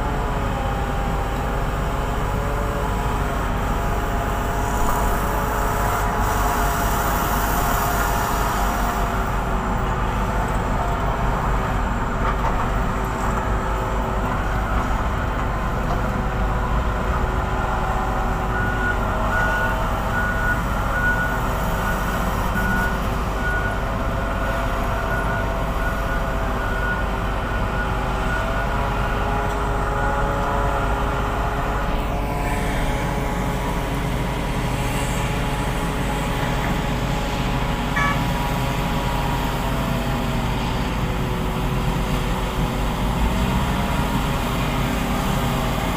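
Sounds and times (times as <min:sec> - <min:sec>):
heavy diesel engines running: 0:00.0 - 0:45.9
alarm beeping: 0:37.9 - 0:38.4.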